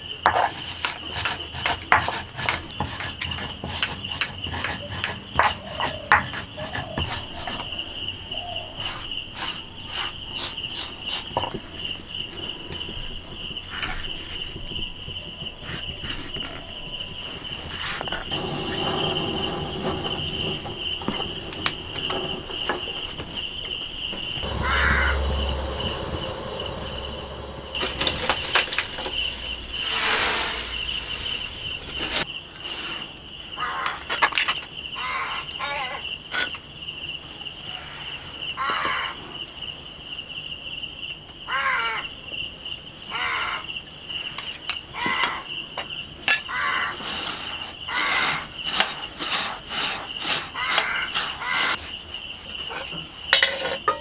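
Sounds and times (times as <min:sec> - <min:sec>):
cricket chirping: 0:00.0 - 0:54.0
stone scraping crushing seeds: 0:00.2 - 0:07.8, 0:08.8 - 0:11.6.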